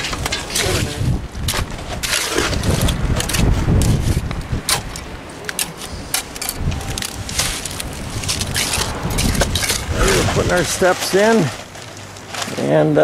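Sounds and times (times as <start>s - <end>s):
trowel scraping wet cement: 0.0s - 4.8s
constant low rumble: 0.0s - 13.0s.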